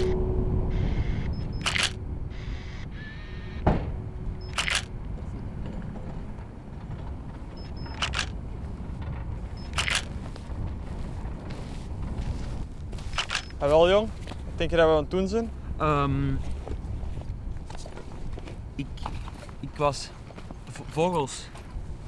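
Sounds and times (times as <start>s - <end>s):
low outdoor rumble: 0.0s - 22.0s
camera shutter double click: 1.6s - 2.0s, 4.5s - 4.9s
thump: 3.6s - 4.0s.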